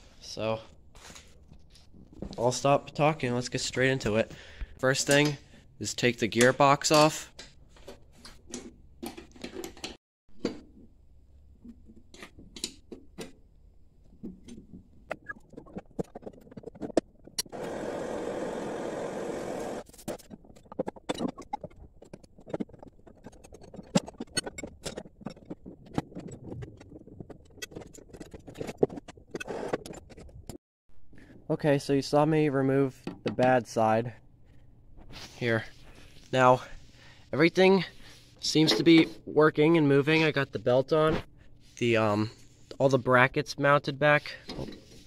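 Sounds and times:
wrenches and metal parts clinking: 4.9s - 10.0s.

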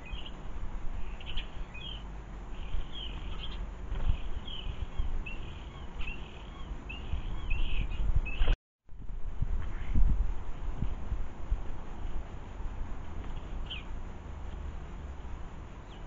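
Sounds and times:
songbird chirping: 0.0s - 8.6s, 12.0s - 16.0s
low outdoor rumble: 0.0s - 16.0s.

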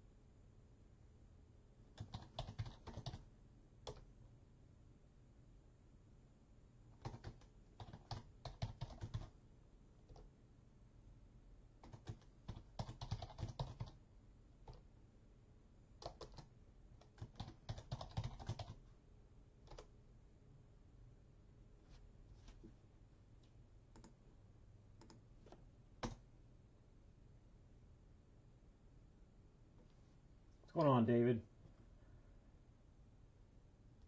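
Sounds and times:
faint typing on keyboard: 1.9s - 4.2s, 6.9s - 9.4s, 10.0s - 10.4s, 11.8s - 14.0s, 14.6s - 14.9s, 16.0s - 18.9s, 19.6s - 20.0s, 21.9s - 24.3s, 24.9s - 26.3s.

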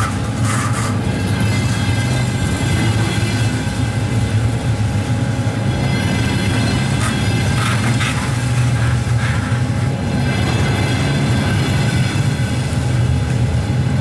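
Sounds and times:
train wheels rumbling on rails: 0.0s - 14.0s.

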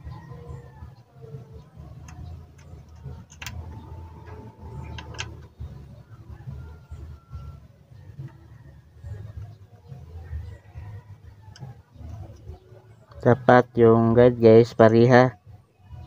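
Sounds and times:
steady low rumble: 0.8s - 12.8s
sharp clicks: 2.0s - 5.5s.

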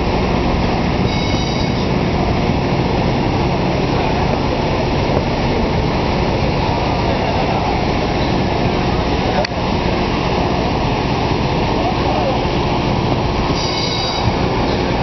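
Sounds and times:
paddle wheel churning water: 0.0s - 15.0s
faint high squeal: 1.1s - 1.9s, 13.6s - 14.3s.

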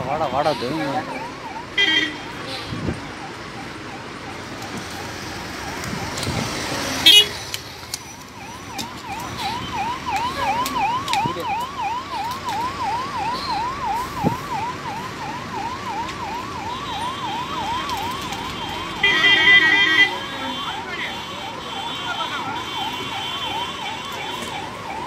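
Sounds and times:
siren in fast yelp: 0.0s - 4.4s, 8.1s - 25.0s
road traffic noise: 0.0s - 25.0s
vehicle horn: 7.1s - 7.4s, 19.0s - 20.6s.

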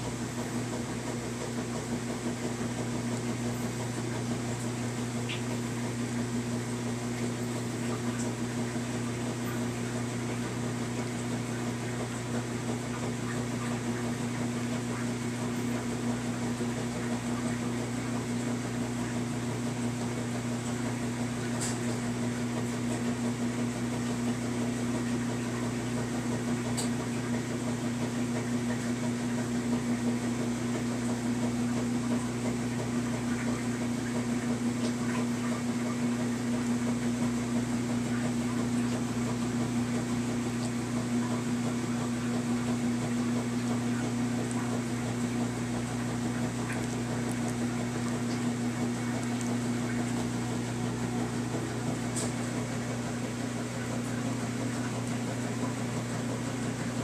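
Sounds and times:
low electrical hum: 0.0s - 57.0s.

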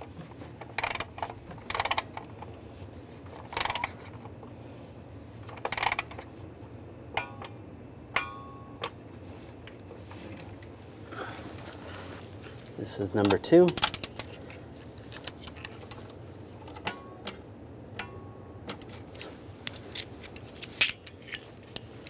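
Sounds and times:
ratchet wrench clicking: 0.7s - 2.1s, 3.5s - 4.0s, 5.6s - 6.2s, 13.7s - 14.4s
sharp metallic clicks: 13.2s - 14.3s.

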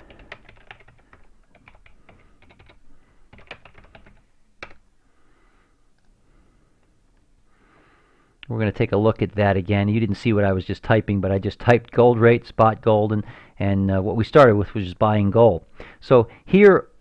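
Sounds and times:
computer keyboard typing: 0.0s - 4.8s.

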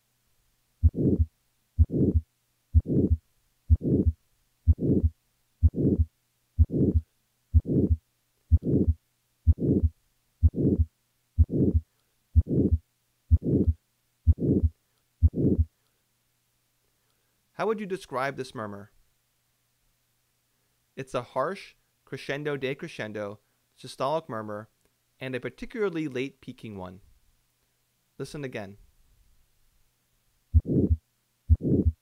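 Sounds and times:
harsh heart murmur: 0.8s - 2.2s, 2.8s - 11.8s, 12.4s - 15.7s, 30.6s - 32.0s
heartbeat: 0.8s - 15.7s, 30.5s - 32.0s.

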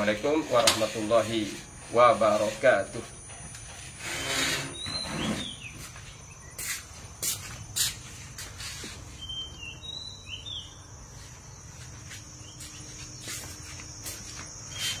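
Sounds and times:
high insect drone: 0.0s - 15.0s
bird whistles: 4.7s - 5.8s.

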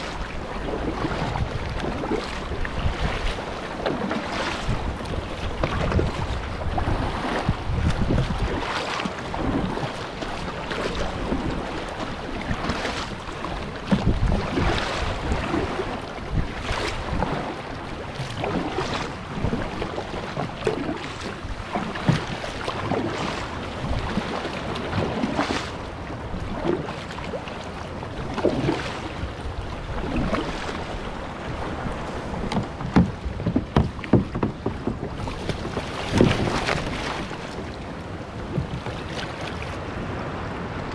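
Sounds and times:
wind on microphone: 0.0s - 27.4s, 28.0s - 40.9s
paddle splashing water: 0.0s - 40.9s
water sloshing at hull: 0.0s - 40.9s
leg splashing into water: 31.9s - 37.7s.

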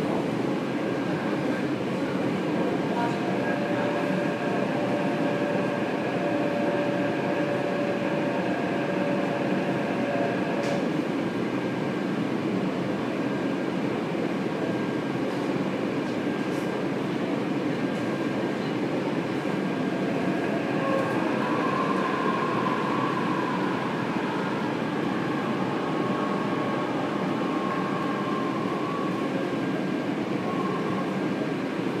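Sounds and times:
train rolling rumble: 0.0s - 32.0s
train motor whine: 3.0s - 11.1s, 20.0s - 31.1s.

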